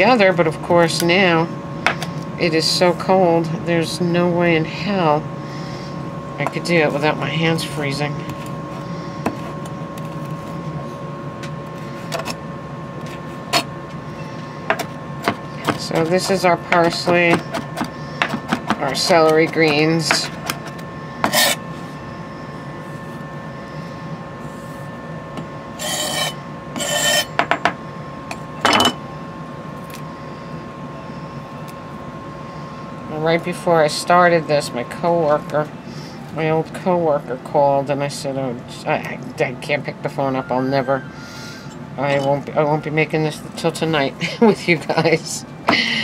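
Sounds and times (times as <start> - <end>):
room hum: 0.0 - 46.0
knife scraping cutting board: 15.6 - 21.6, 25.8 - 27.4.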